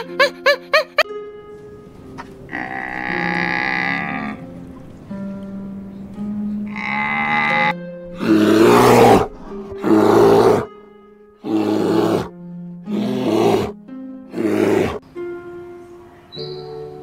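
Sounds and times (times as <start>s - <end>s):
light background music: 0.0s - 17.0s
bear roaring: 2.5s - 4.4s, 6.7s - 10.7s, 11.4s - 12.3s, 12.9s - 15.0s.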